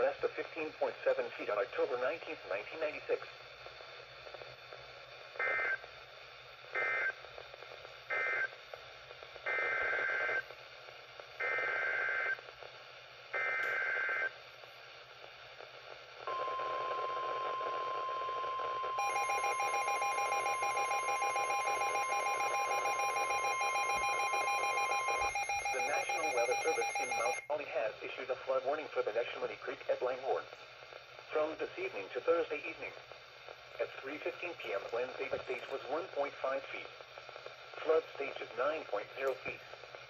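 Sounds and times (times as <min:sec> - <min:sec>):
alert data tone bursts: 0:16.3 - 0:27.5
steady warning alarm tone: 0:16.3 - 0:27.5.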